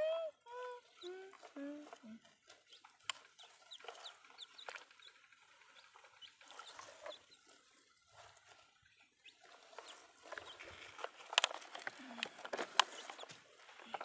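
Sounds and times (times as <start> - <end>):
chickens clucking: 0.0 - 14.0
plastic toy trucks tapping in mud: 9.8 - 14.0.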